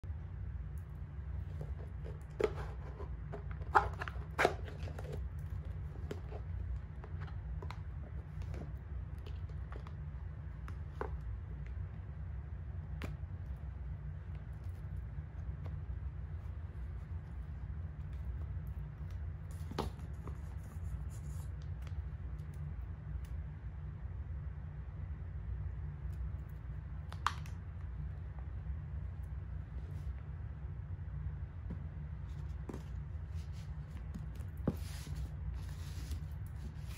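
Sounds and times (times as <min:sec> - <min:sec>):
steady low hum: 0:00.0 - 0:36.9
soft rustling: 0:31.6 - 0:36.9.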